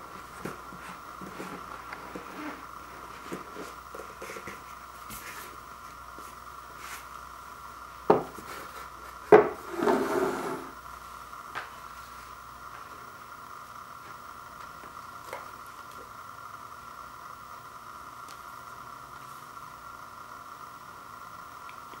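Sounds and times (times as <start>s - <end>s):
faint steady whine: 0.0s - 22.0s
cardboard lid knocking on floor: 8.1s - 8.4s, 9.3s - 10.1s
cardboard scraping slide: 9.6s - 10.8s.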